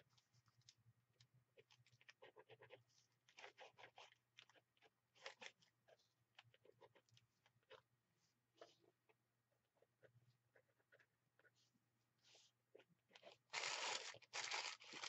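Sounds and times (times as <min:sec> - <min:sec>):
pen scratching on paper: 0:01.6 - 0:07.8, 0:09.8 - 0:13.5.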